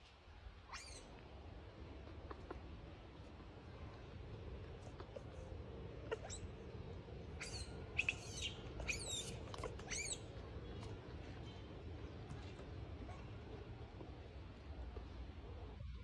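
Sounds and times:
baby monkey squealing: 0.7 - 1.1, 6.1 - 6.4, 7.4 - 10.2.

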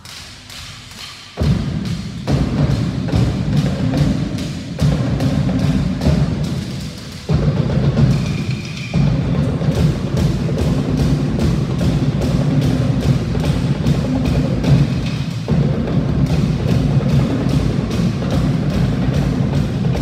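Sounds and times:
drum ensemble fast rhythm: 1.3 - 20.0
deep drum beats: 1.4 - 20.0.

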